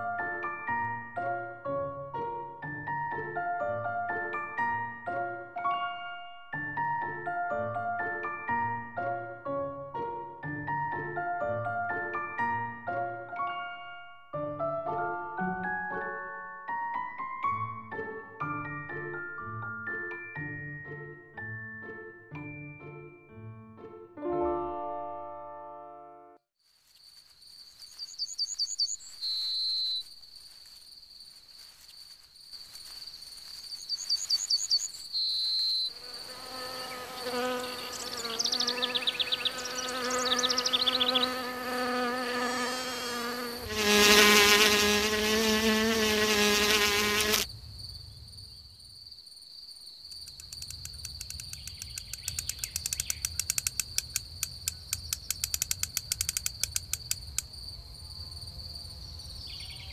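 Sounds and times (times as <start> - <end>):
short insect chirps: 26.6 - 59.9
insect wing buzz: 26.7 - 47.9, 50.0 - 59.8
high-pitched cricket trill: 26.8 - 59.9
fast clicking chirps: 33.6 - 35.9, 50.1 - 57.5.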